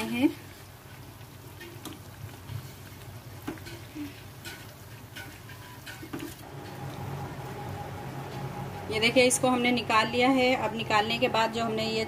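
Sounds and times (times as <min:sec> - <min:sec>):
food deep-frying in hot oil: 0:00.0 - 0:12.0
oil pops and crackles: 0:01.2 - 0:06.4
steady low hum: 0:06.4 - 0:12.0.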